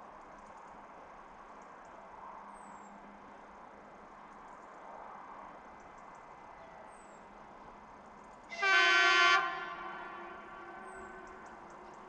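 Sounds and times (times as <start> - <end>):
electric train horn blast: 8.5 - 11.7.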